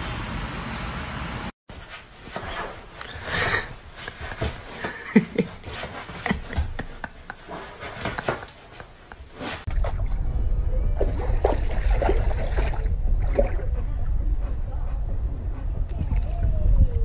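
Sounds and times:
cat scrabbling on upholstery: 3.9s - 9.7s.

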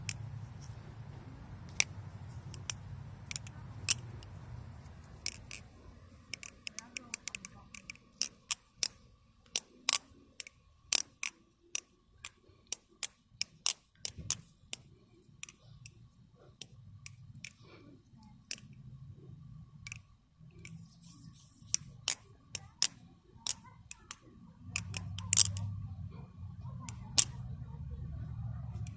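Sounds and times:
butterfly knife clacking: 1.7s - 16.0s, 19.8s - 25.7s.

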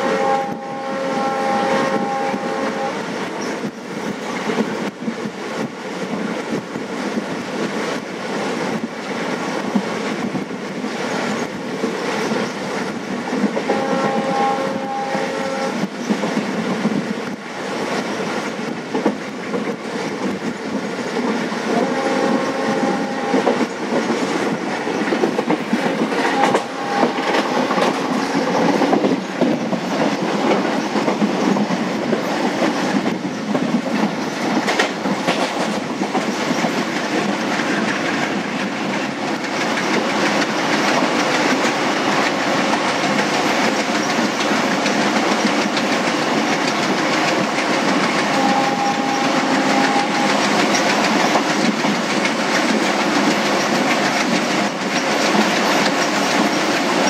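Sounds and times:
train horn: 0.0s - 3.2s, 13.6s - 15.9s, 21.7s - 23.7s, 26.2s - 28.8s, 48.2s - 50.8s
train rumble: 0.0s - 57.0s
train wheels clattering: 0.0s - 57.0s.

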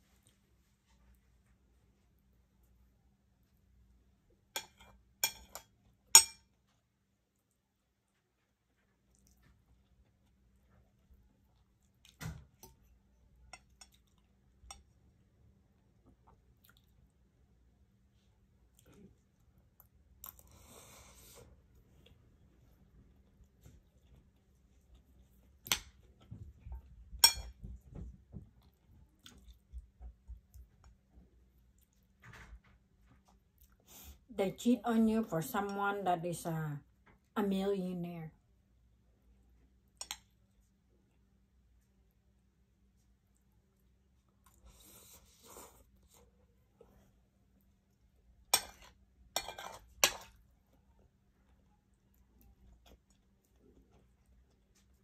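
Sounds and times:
cutlery clinking: 4.6s - 6.6s, 27.2s - 27.7s, 48.6s - 50.4s
person chewing food: 4.8s - 32.2s, 42.8s - 55.0s
cutlery scraping a plate: 48.6s - 50.3s.

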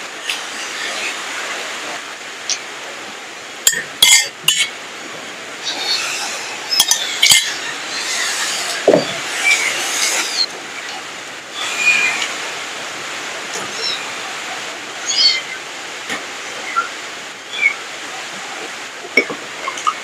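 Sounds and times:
spoon clinking on plates: 3.7s - 4.7s.

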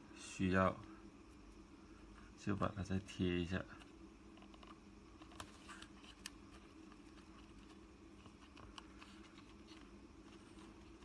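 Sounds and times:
low steady hum: 0.0s - 11.0s
fingers pressing tape and wires: 3.8s - 9.9s.

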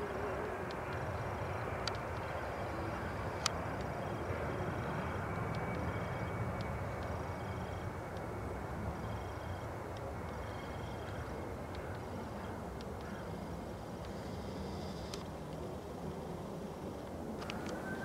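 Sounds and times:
distant jet engines rushing: 0.0s - 18.0s.

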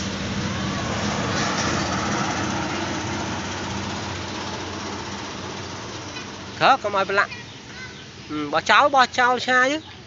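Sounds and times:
steady rushing noise: 0.0s - 7.2s
engine idling: 0.0s - 10.0s.

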